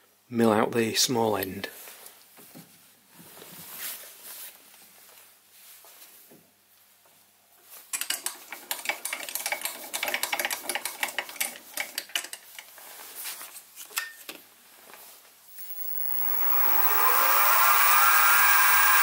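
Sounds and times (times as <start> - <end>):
mill spindle motor whine: 15.5 - 19.0.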